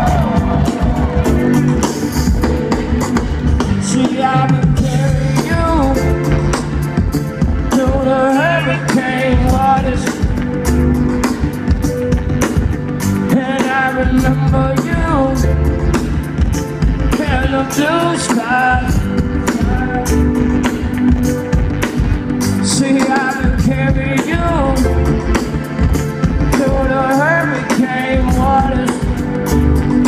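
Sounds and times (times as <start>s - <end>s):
live rock band playing: 0.0s - 30.0s
person singing: 3.8s - 7.0s, 7.6s - 10.7s, 13.2s - 16.0s, 17.1s - 20.9s, 22.6s - 29.6s.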